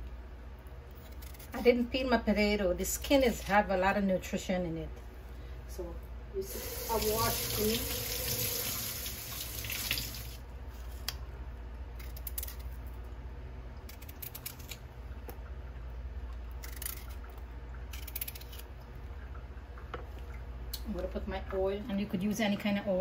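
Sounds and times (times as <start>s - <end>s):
low steady hum: 0.0s - 23.0s
kitchen tap running: 6.4s - 10.4s.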